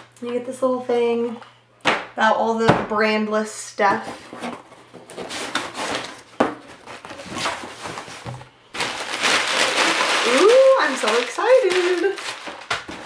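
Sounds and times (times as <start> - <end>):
packing paper rustling: 4.3 - 13.0.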